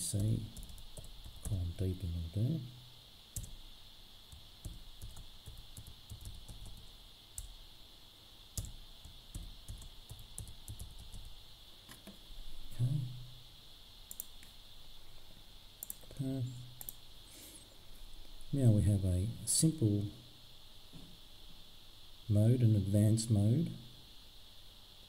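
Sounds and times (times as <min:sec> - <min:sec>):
steady high hiss: 0:00.0 - 0:25.0
laptop keyboard typing: 0:00.2 - 0:01.6, 0:03.4 - 0:03.6, 0:04.3 - 0:07.6, 0:08.6 - 0:11.4.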